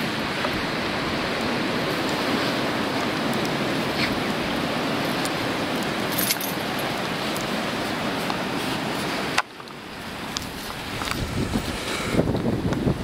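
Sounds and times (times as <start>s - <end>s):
metallic jingles of dog collar tags: 6.1s - 6.6s.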